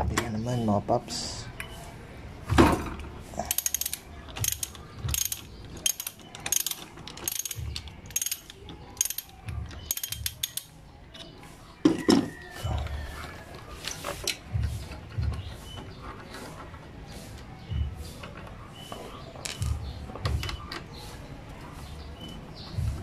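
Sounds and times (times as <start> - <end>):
socket ratchet clicking: 3.5 - 11.3.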